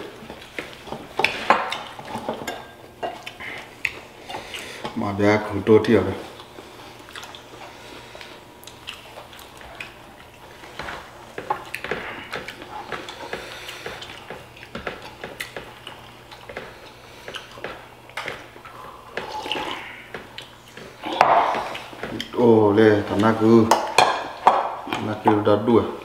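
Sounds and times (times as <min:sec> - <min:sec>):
wet chewing and squelching: 0:06.3 - 0:22.4.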